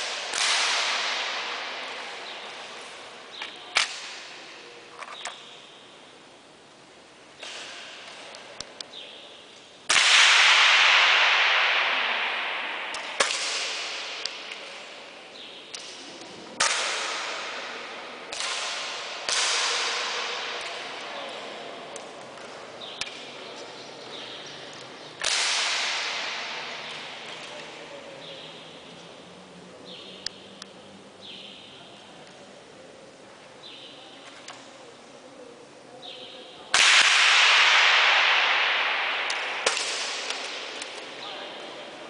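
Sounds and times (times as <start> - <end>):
air rifle shots echoing: 0.0 - 4.6, 9.9 - 23.5, 25.2 - 28.8, 36.7 - 41.6.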